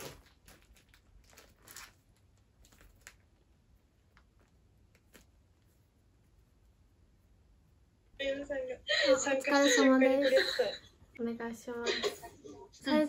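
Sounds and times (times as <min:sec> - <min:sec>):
plastic packaging crinkling: 0:00.0 - 0:03.6.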